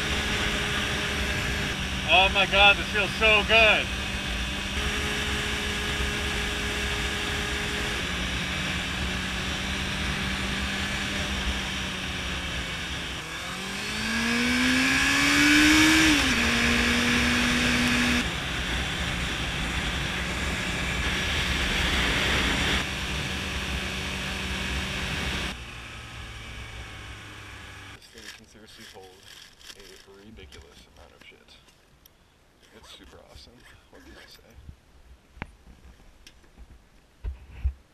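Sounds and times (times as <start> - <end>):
motorcycle engine cruising: 0.0 - 30.3.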